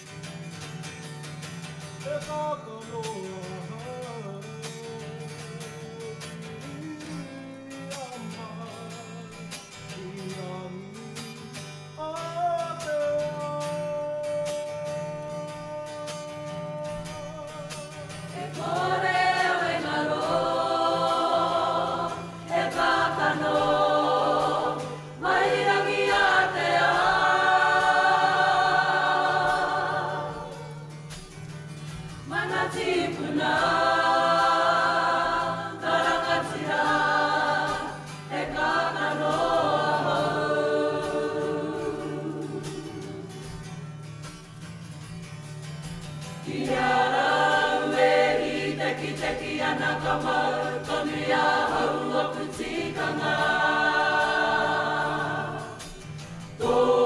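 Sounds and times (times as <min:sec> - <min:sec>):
acoustic guitar strumming: 0:00.0 - 0:57.0
group of men and women singing: 0:14.0 - 0:31.2, 0:32.0 - 0:43.8, 0:46.4 - 0:57.0.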